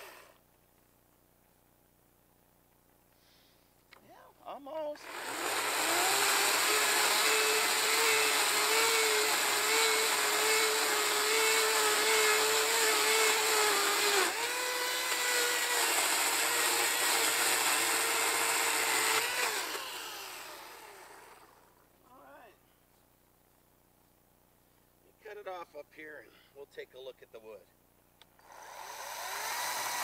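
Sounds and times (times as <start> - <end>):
chainsaw cutting through log: 0.0 - 0.4, 5.0 - 21.8, 28.4 - 30.0.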